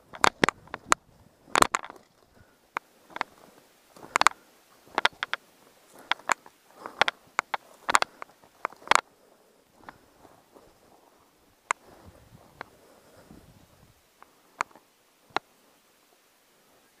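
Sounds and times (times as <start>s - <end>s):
footsteps snapping twigs: 0.0s - 9.1s.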